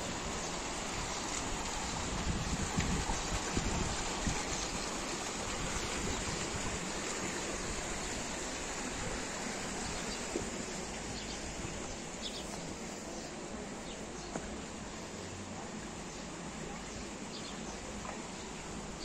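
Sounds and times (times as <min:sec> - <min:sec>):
water rushing down channel: 0:00.0 - 0:19.0.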